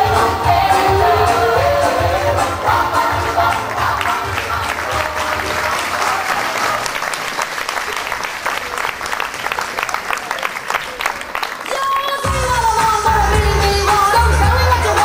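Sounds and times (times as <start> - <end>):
music: 0.0 - 6.9, 11.8 - 15.0
audience applauding: 3.2 - 12.3.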